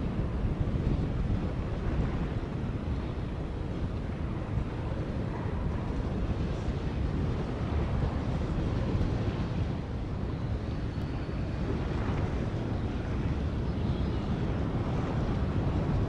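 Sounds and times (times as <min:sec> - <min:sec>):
wind buffeting microphone: 0:00.0 - 0:16.0.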